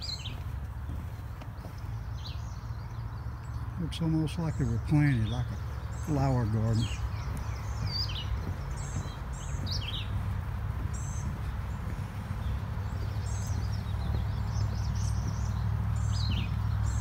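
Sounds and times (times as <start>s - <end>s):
distant road traffic rumble: 0.0s - 17.0s
songbirds chirping and trilling: 0.0s - 17.0s.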